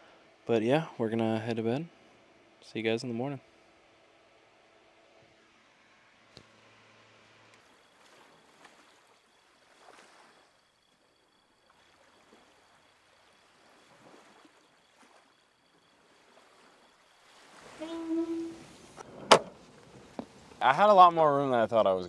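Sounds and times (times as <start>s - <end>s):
faint hiss: 15.9s - 22.0s.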